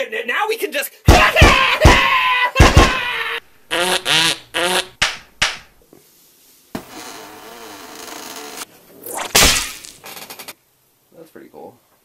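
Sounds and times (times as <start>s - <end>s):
cartoon smacks and thuds: 1.1s - 3.1s, 4.8s - 5.8s, 9.1s - 10.0s
mouth-made pitched noise: 3.7s - 5.1s, 8.4s - 10.0s.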